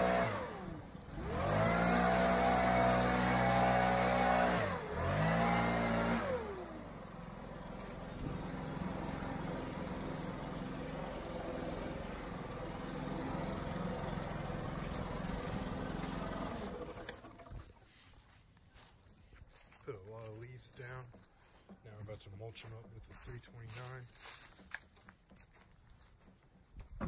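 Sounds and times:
gas leaf blower running: 0:00.0 - 0:18.4.

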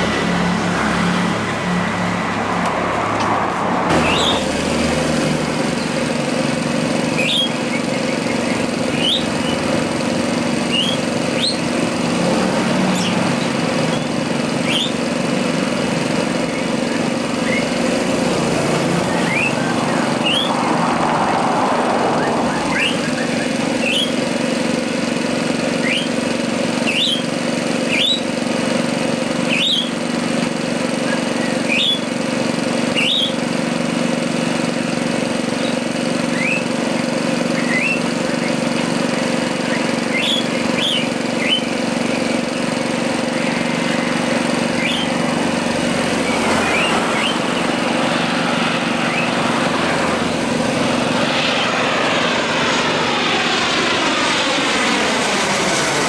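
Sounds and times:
jet airliner roar overhead: 0:00.0 - 0:56.0
low engine hum: 0:00.0 - 0:56.0
short rising bird chirps: 0:04.0 - 0:04.5, 0:07.1 - 0:09.7, 0:10.7 - 0:11.7, 0:12.9 - 0:15.0, 0:18.9 - 0:20.6, 0:22.1 - 0:24.2, 0:33.0 - 0:33.4, 0:37.5 - 0:38.6, 0:39.6 - 0:42.3, 0:44.7 - 0:45.2, 0:46.1 - 0:47.8, 0:48.8 - 0:49.7.

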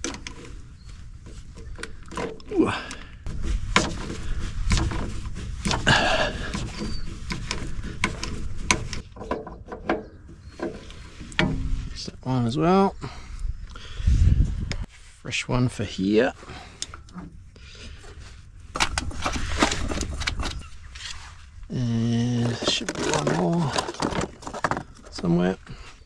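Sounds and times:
person grunting: 0:02.5 - 0:03.1.

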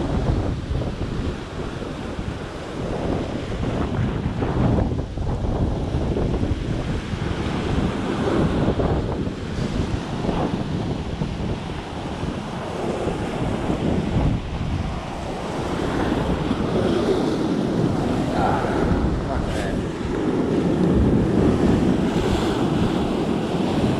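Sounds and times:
surf crashing over rocks: 0:00.0 - 0:23.9
wind buffeting microphone: 0:00.0 - 0:23.9.

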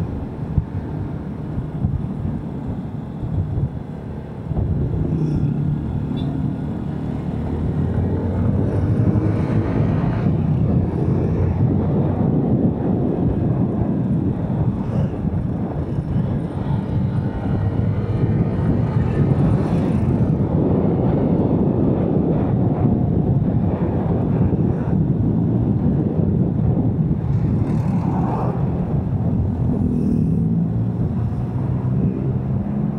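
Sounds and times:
road noise: 0:00.0 - 0:32.9
wind on microphone: 0:00.0 - 0:32.9.

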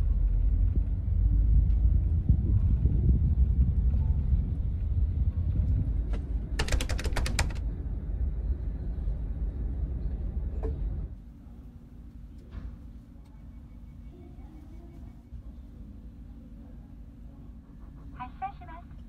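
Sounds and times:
bus engine rumbling: 0:00.0 - 0:19.0
rapid sharp clicks: 0:06.1 - 0:07.6.

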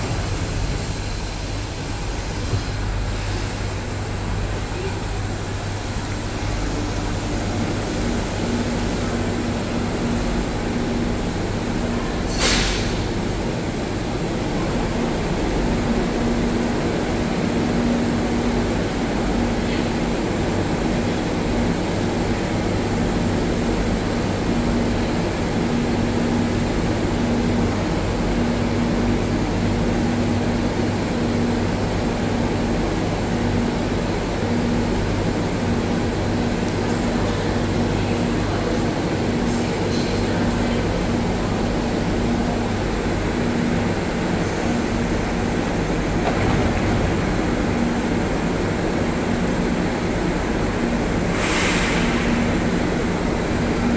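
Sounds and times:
train and station hum: 0:00.0 - 0:53.9
air release hiss: 0:12.3 - 0:13.1, 0:51.3 - 0:52.6.

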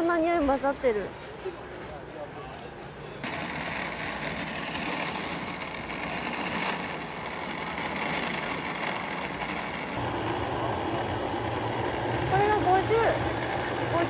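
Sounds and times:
street market noise: 0:00.0 - 0:14.0
vehicle engine running: 0:03.2 - 0:14.0.

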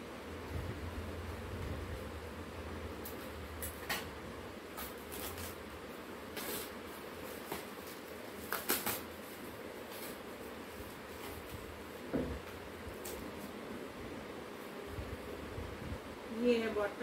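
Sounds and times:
steady low hum: 0:00.0 - 0:17.0
packaging crinkling and rustling: 0:03.0 - 0:13.6.

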